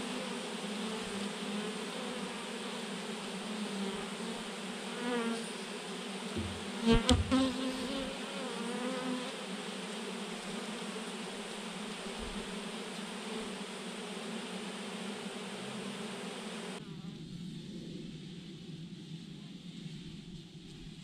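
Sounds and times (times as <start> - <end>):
bees buzzing: 0.0 - 16.8.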